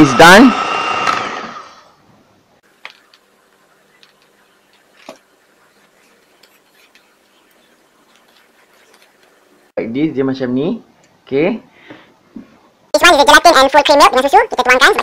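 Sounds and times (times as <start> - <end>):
electric hand mixer whirring: 0.0 - 2.0.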